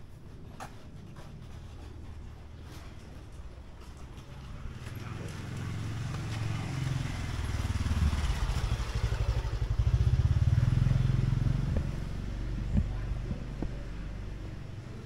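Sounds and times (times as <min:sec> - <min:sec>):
small motor vehicle engine passing: 0:04.1 - 0:15.0.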